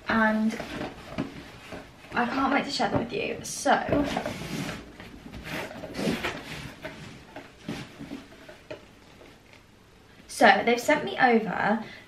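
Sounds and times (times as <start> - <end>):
rustling in cardboard box: 0.2 - 8.8.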